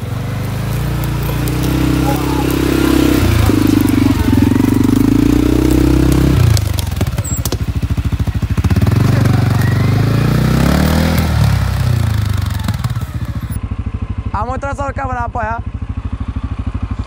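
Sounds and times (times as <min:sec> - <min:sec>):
knocks and clatter over rough ground: 0:00.0 - 0:13.6
quad bike engine revving: 0:00.0 - 0:17.0.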